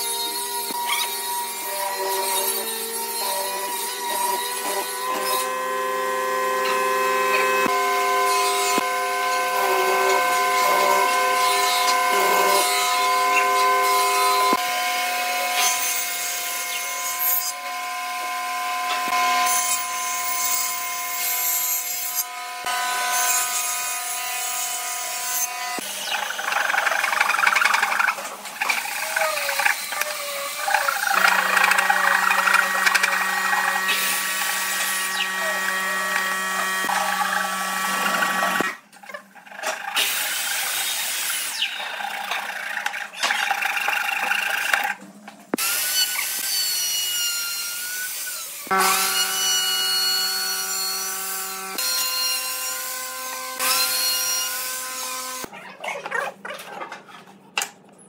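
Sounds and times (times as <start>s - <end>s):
table saw cutting: 0.0s - 55.5s
mortiser motor hum: 1.9s - 14.6s, 25.8s - 38.8s
hand saw rasping through wood: 25.8s - 38.8s.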